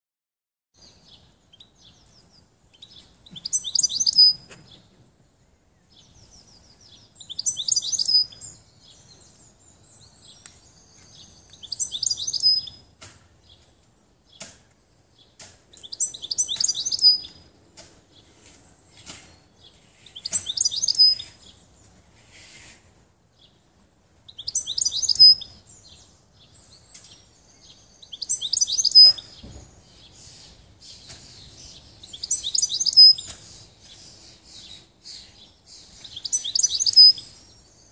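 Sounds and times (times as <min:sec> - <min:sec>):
soft bird chirps: 0:00.8 - 0:37.9
bird twittering: 0:01.5 - 0:04.5, 0:06.0 - 0:12.8, 0:15.7 - 0:18.2, 0:18.9 - 0:22.6, 0:24.2 - 0:37.9.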